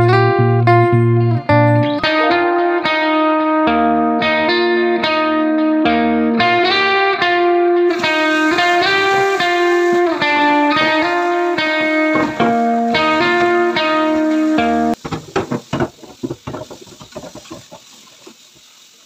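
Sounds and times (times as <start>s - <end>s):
plucked guitar melody: 0.0s - 15.0s.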